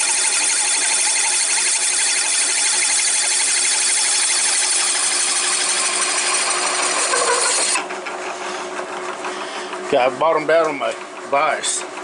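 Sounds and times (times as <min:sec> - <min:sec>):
drill bit cutting metal: 0:00.0 - 0:07.8.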